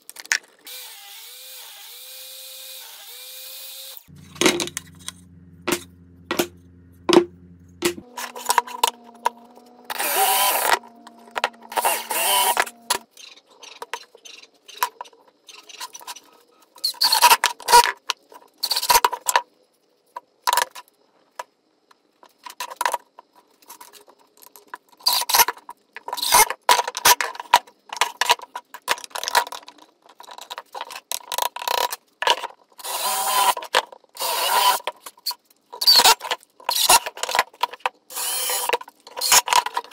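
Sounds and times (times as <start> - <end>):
power tool bursts: 0.7 - 10.8, 11.7 - 13.0.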